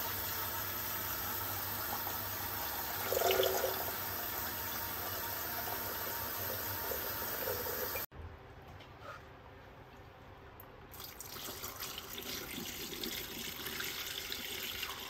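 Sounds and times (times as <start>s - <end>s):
tap water filling a glass jug: 2.9s - 4.0s.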